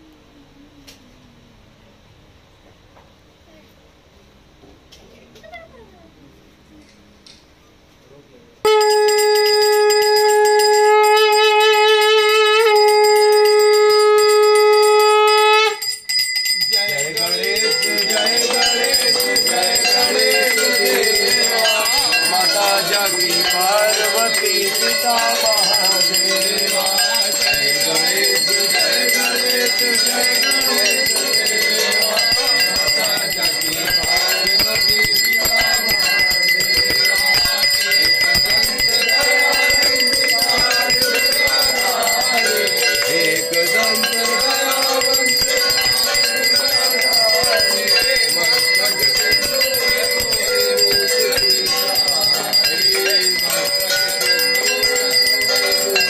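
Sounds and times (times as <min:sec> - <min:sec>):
temple bells ringing rapidly: 0:08.7 - 0:11.6, 0:12.6 - 0:56.0
crowd singing a chant: 0:16.7 - 0:56.0
crowd clapping along: 0:17.8 - 0:56.0.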